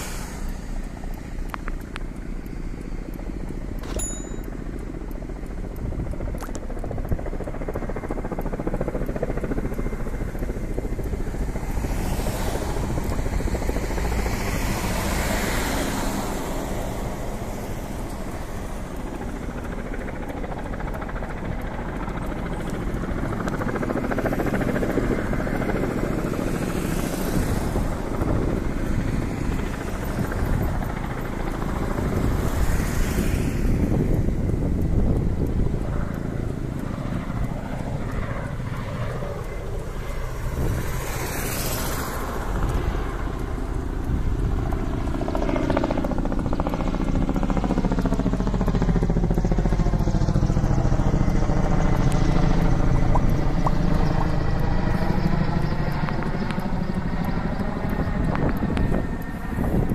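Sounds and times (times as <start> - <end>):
helicopter flying overhead: 0.0 - 59.9
road traffic: 0.0 - 59.9.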